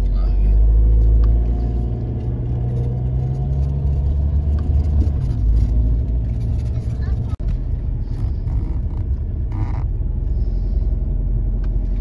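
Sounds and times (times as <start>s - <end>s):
car engine: 0.0s - 12.0s
road rumble: 0.0s - 12.0s.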